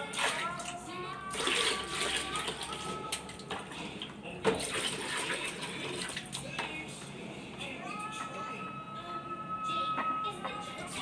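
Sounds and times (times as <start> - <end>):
water splashing in a basin: 0.0 - 3.8, 4.5 - 6.5.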